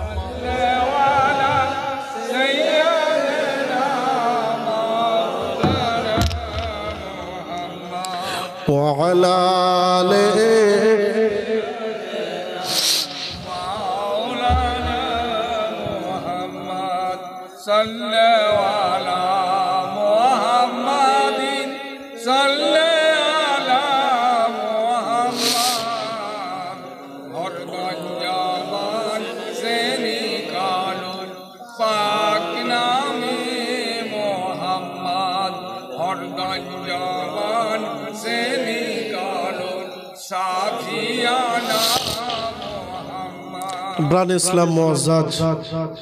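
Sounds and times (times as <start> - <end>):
man chanting through loudspeaker: 0.0 - 46.0
man breathing: 8.2 - 8.6, 12.7 - 13.5, 25.4 - 26.1.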